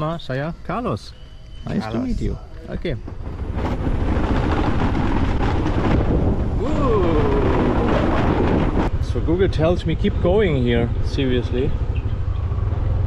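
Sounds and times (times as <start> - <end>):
wind buffeting microphone: 1.7 - 11.1
man shouting whoo: 6.6 - 7.9.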